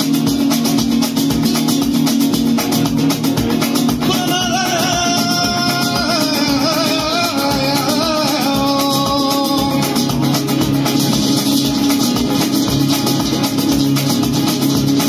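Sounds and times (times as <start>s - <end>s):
strummed acoustic guitars: 0.0s - 15.0s
man singing: 4.0s - 10.2s.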